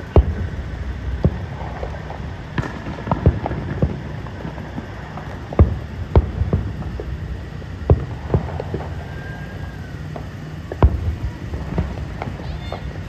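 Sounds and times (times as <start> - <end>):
fireworks bangs: 0.0 - 13.0
low background noise: 0.0 - 13.0.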